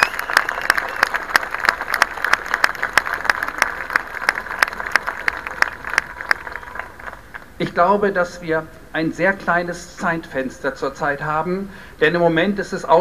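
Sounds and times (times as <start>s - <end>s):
crowd applauding: 0.0s - 7.5s.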